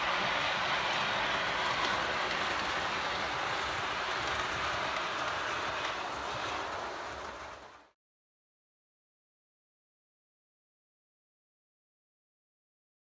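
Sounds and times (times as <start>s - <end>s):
model trains rolling on track: 0.0s - 8.0s.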